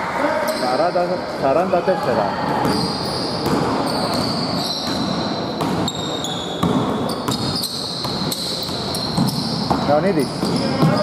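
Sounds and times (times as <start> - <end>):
basketball bouncing on wooden court: 2.6 - 11.0.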